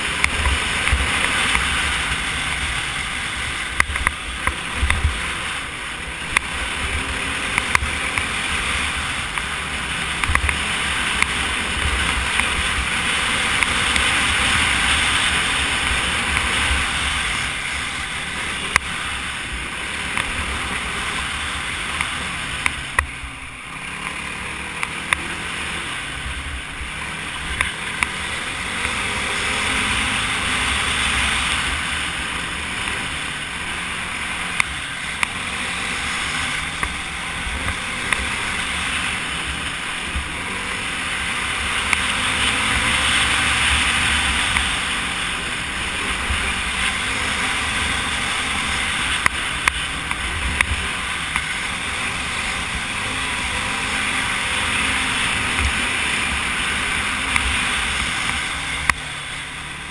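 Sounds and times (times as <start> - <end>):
wind noise on camera: 0.0 - 23.3
quad engine running: 0.0 - 59.9.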